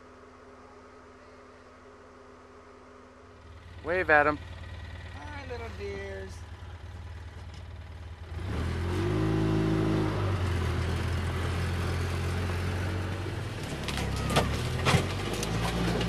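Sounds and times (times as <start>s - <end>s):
utility vehicle engine revving: 3.4s - 16.0s.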